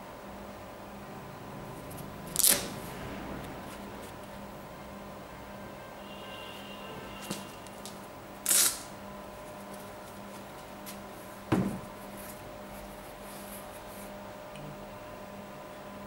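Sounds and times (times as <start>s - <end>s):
steady electrical hum: 0.0s - 16.0s
dull thump: 11.5s - 11.9s.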